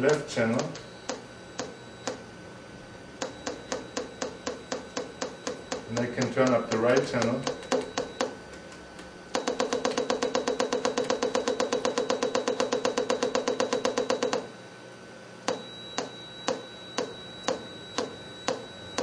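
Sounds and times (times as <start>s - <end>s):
speaker clicking: 3.2s - 11.7s.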